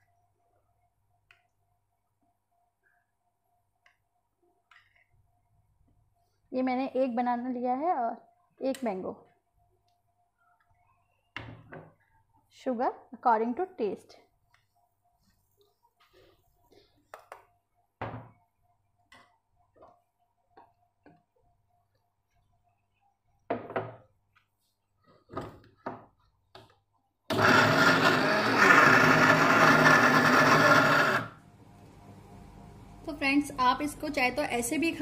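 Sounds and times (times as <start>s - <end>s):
blender whirring: 27.3s - 32.8s.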